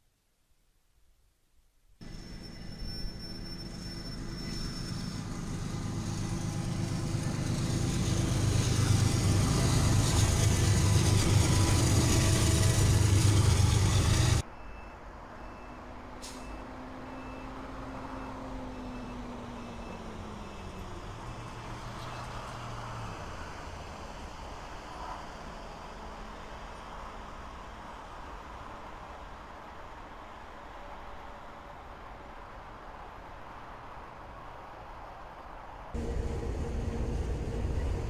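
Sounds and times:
heavy rumble: 4.8 - 14.4, 36.0 - 38.0
low hum: 36.0 - 38.0.

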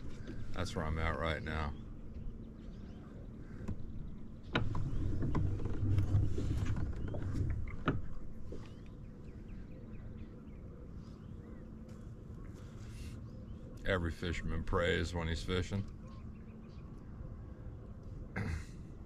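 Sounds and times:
faint bird chirps: 0.0 - 18.6
rustling on a kayak: 2.0 - 13.5.

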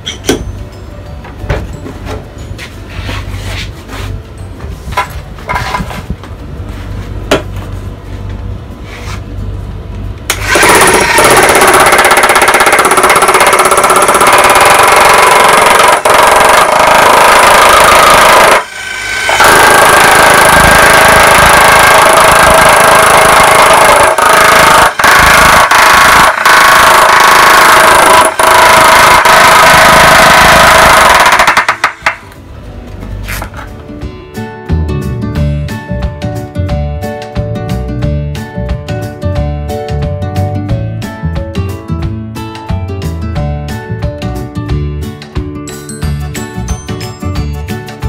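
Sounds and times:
demolition hammer chiselling a board: 10.5 - 18.6, 19.3 - 32.2.

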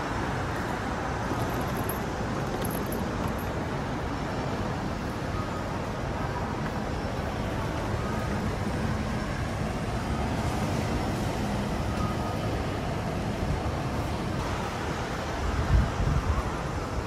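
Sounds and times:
indoor hall rumble and hiss: 0.0 - 17.0.

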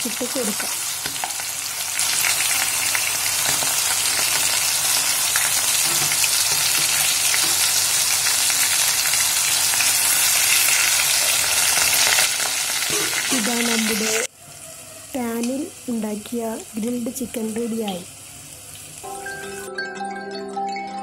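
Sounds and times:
chicken sizzling in hot oil: 0.0 - 19.7
spoon turning chicken: 0.4 - 8.9.

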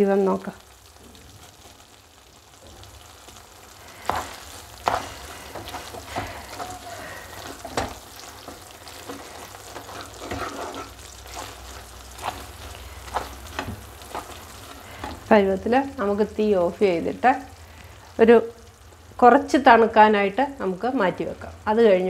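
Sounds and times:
spatula scraping a pan: 3.9 - 15.4.

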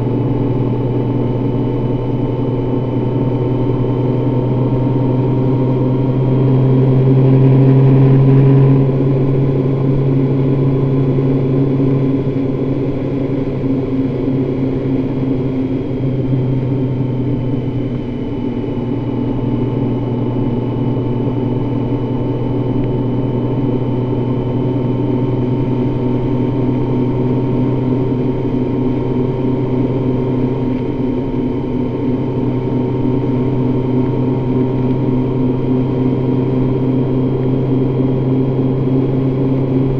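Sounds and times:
motorcycle engine hum: 0.0 - 39.9
road and wind noise: 0.0 - 39.9.

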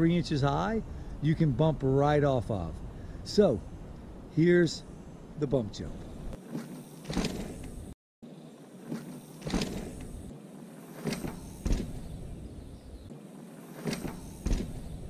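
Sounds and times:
bike tyres rolling on dirt: 6.0 - 15.0
bike wheels thumping ground: 6.3 - 15.0.

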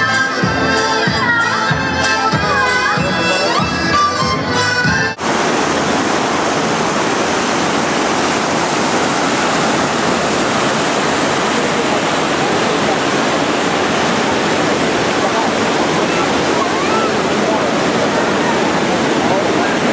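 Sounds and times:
water rushing over stone: 5.2 - 19.9.

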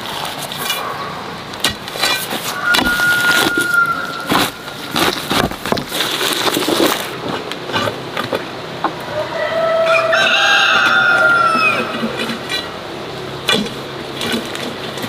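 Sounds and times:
hoe chopping soil: 1.6 - 7.1
rooster crowing: 2.5 - 4.7, 9.0 - 12.4.

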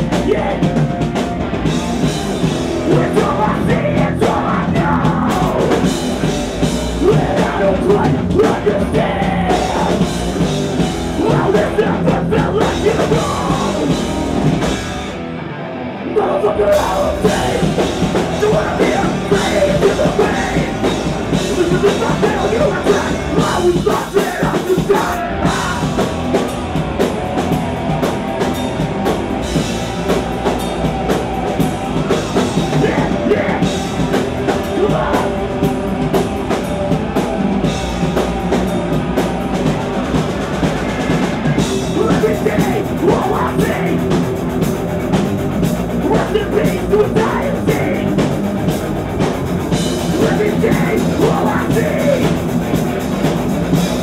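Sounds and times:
drum kit: 0.0 - 15.4, 16.2 - 54.0
electric guitars: 0.0 - 54.0
person singing into microphone: 2.9 - 5.9, 11.2 - 14.0, 16.1 - 26.0, 32.5 - 35.4, 41.9 - 44.0, 46.0 - 48.2, 50.1 - 52.4.

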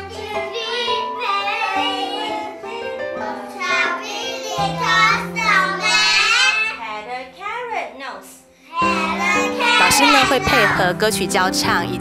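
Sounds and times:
children singing: 0.0 - 6.8, 8.8 - 10.8
music: 0.0 - 12.0.

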